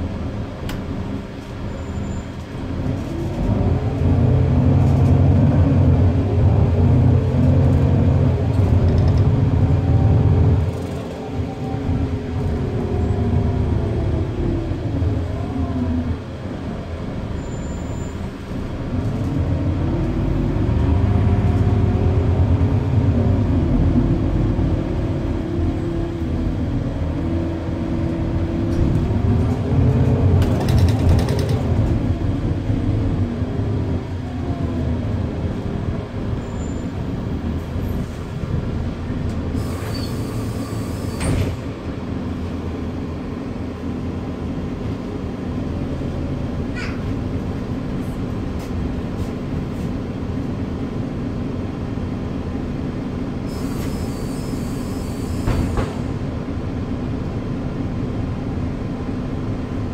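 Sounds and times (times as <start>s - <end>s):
bus engine running: 0.0s - 59.9s
air brake hisses: 39.6s - 41.6s, 53.5s - 56.1s.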